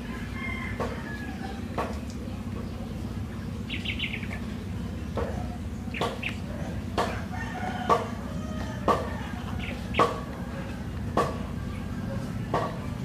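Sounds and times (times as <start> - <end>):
low steady hum: 0.0 - 13.0
chicken clucking: 5.1 - 13.0.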